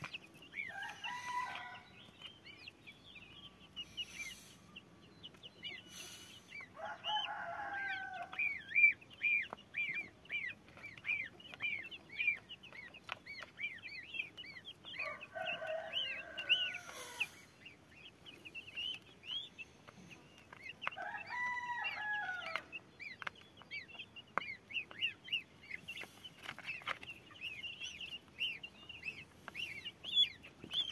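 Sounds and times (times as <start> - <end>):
goslings and chicks peeping: 0.0 - 30.9
rooster crowing: 0.7 - 1.9, 6.8 - 8.4, 15.0 - 17.3, 21.0 - 22.7.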